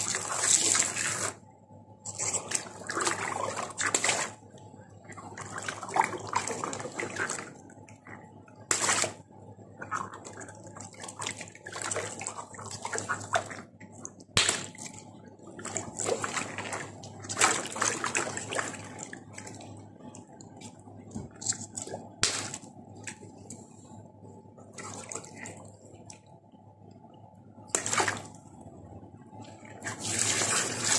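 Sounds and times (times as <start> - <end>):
water sloshing and splashing: 0.0 - 30.9
sharp slaps on water balloons: 14.4 - 14.8, 22.2 - 22.6.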